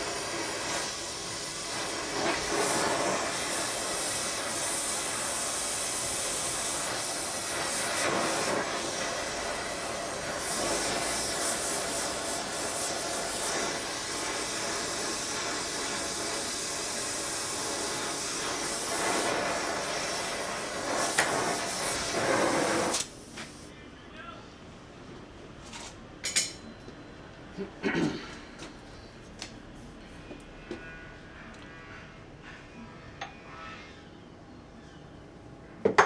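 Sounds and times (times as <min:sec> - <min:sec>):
gas torch flame hissing: 0:00.0 - 0:23.7.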